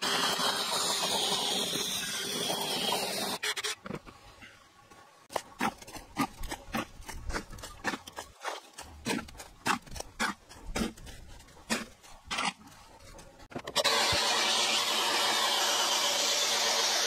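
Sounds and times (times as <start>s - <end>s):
electric drill boring into wood: 0.0s - 3.4s, 13.8s - 17.0s
trowel scraping wet concrete: 5.3s - 14.2s.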